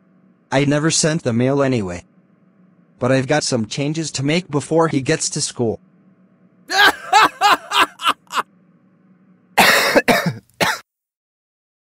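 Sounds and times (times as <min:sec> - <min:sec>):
man laughing: 0:06.7 - 0:08.4.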